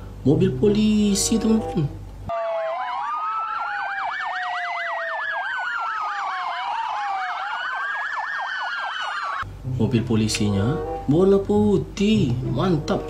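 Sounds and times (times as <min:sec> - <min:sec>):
police sirens yelping and wailing: 0:02.3 - 0:09.5.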